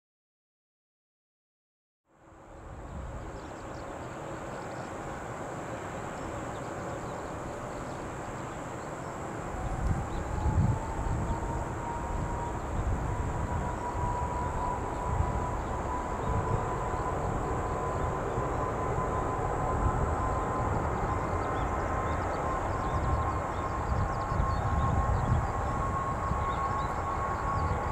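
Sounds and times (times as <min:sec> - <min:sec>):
jet engines whine spooling up: 0:02.3 - 0:27.9.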